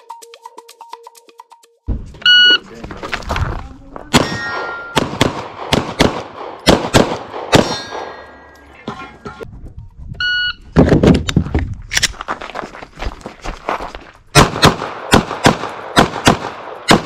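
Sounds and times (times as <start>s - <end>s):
shot timer beep: 2.2s - 2.6s
pistol shots: 4.1s - 8.3s, 14.3s - 17.0s
steel plates ringing: 4.2s - 5.0s, 7.6s - 9.4s.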